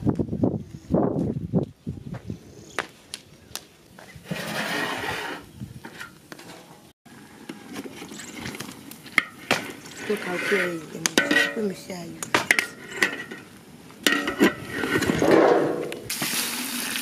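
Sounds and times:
cooking pot knocks and clinks: 11.0s - 15.2s.

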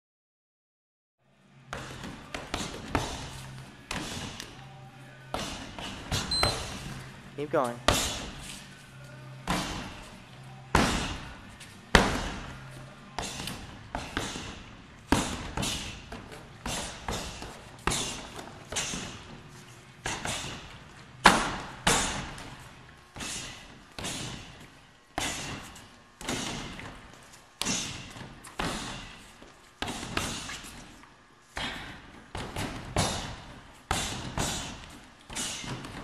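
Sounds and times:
thuds on heavy bag: 10.7s - 12.5s.

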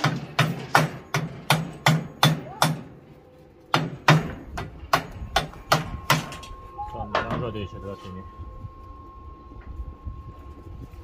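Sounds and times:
hammer striking metal bolt: 0.0s - 2.9s.

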